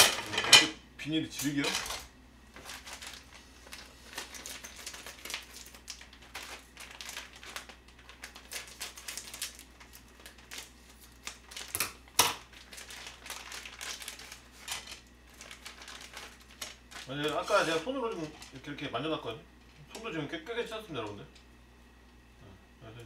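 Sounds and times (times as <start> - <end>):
plastic packet crinkling: 1.4 - 18.7.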